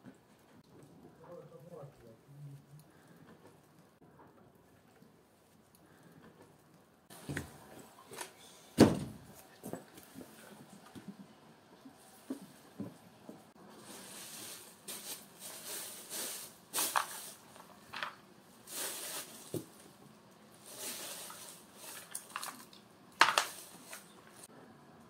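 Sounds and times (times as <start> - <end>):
plastic bag rustling: 13.6 - 20.0, 20.6 - 24.5.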